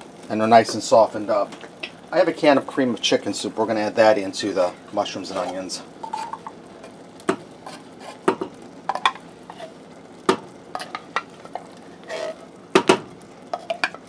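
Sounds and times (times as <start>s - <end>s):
faint pan sizzle: 0.0s - 14.0s
wooden spoon scraping saucepan: 4.4s - 6.5s, 7.6s - 9.8s, 10.8s - 12.5s.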